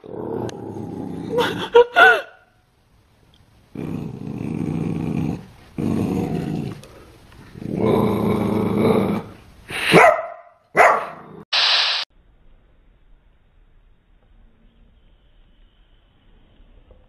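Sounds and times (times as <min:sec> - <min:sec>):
puppy growling: 0:00.0 - 0:01.6, 0:03.7 - 0:09.4
puppy barking: 0:09.9 - 0:11.2
short hiss: 0:11.5 - 0:12.1.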